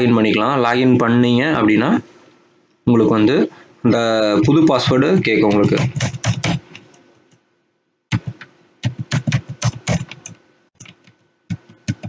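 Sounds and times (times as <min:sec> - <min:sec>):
computer keyboard typing: 0:05.2 - 0:07.0, 0:08.1 - 0:12.0.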